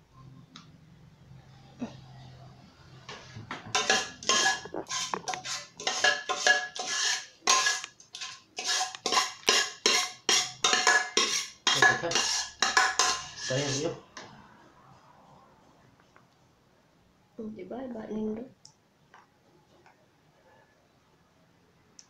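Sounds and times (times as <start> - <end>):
metal spoon scraping a pot: 3.1 - 14.0.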